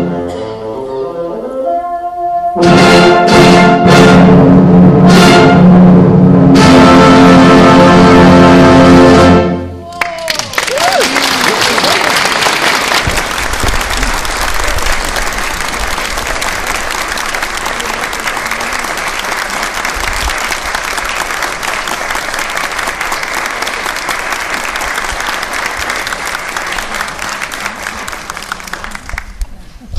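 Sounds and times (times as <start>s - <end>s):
audience applauding: 9.9s - 29.6s.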